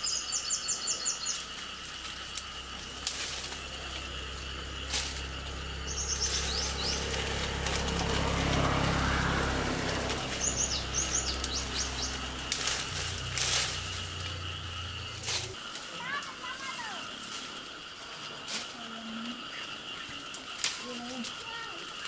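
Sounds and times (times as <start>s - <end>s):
low steady hum: 0.0s - 15.6s
small birds chirping: 0.0s - 18.0s, 19.1s - 22.0s
high insect drone: 0.0s - 22.0s
short falling bird calls: 5.2s - 12.6s.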